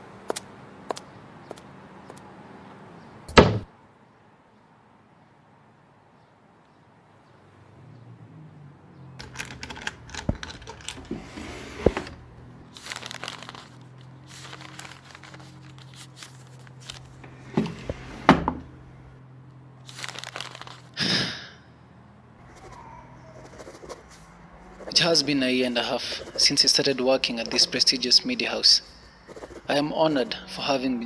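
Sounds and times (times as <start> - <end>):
paper crumpling and tearing: 12.7 - 17.2, 19.8 - 21.0, 23.4 - 28.0, 29.3 - 29.8.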